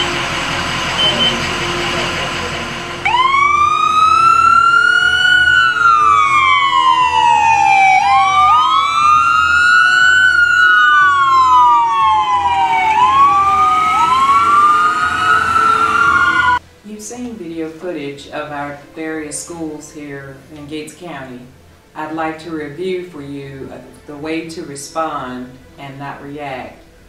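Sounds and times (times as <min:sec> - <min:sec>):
ambulance siren wailing: 0:00.0 - 0:16.6
low vehicle rumble: 0:00.0 - 0:16.6
second siren wail: 0:00.0 - 0:16.6.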